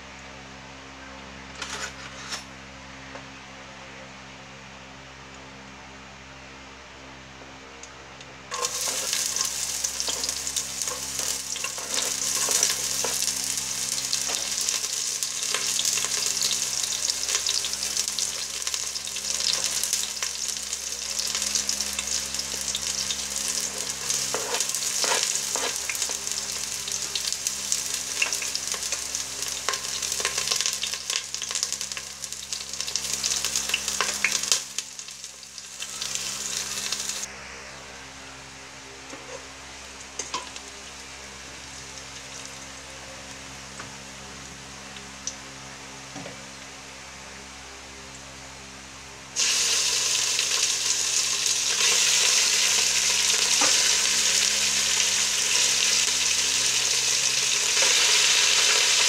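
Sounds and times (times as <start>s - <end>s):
onions sizzling in oil: 8.5s - 37.3s, 49.4s - 59.0s.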